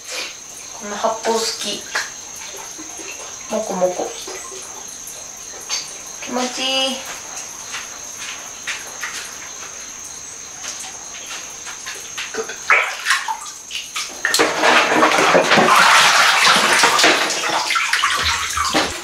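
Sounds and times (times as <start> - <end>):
bath additive fizzing: 0.0 - 19.0
bath water sloshing: 0.6 - 19.0
loud water splashing: 12.1 - 19.0.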